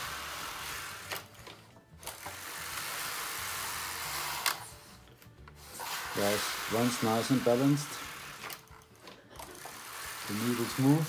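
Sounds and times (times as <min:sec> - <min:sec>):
knitting machine carriage rattling: 0:05.6 - 0:11.0.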